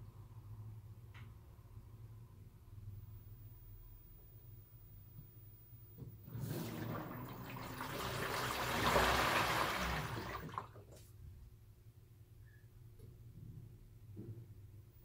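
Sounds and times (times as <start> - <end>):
water spraying into washing machine: 6.3 - 11.0.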